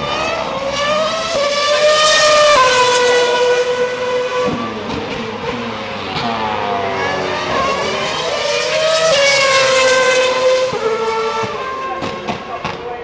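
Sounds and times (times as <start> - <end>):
racing car engines at high revs: 0.0 - 13.0.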